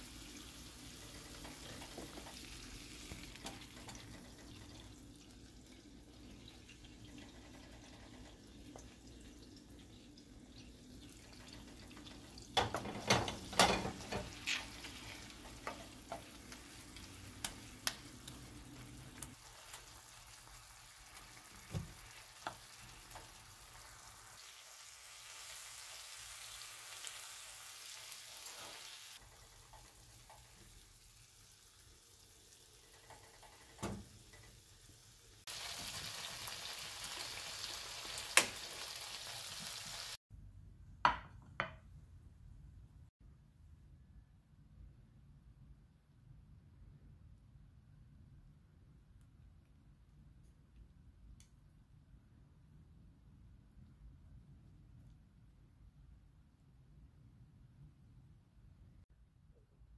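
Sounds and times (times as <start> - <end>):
tomatoes sizzling in a frying pan: 0.0 - 40.2
wooden spatula knocking on a pan: 41.0 - 41.8.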